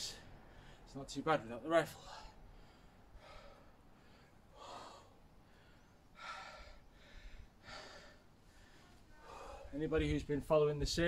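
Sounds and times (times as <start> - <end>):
man breathing hard: 0.1 - 0.9, 1.9 - 9.8.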